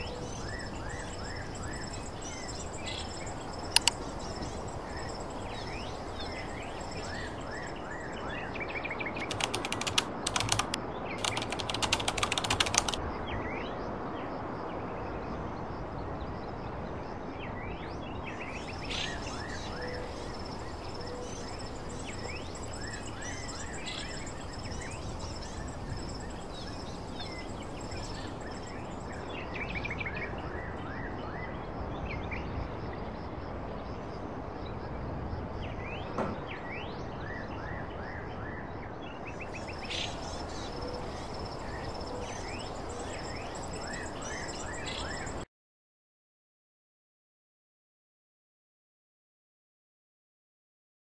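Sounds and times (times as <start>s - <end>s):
birds chirping: 0.0s - 13.0s, 18.2s - 30.8s, 39.2s - 45.4s
insects trilling: 0.0s - 13.0s, 18.2s - 30.8s, 39.3s - 45.4s
steady background hiss: 0.0s - 38.1s, 39.0s - 45.4s.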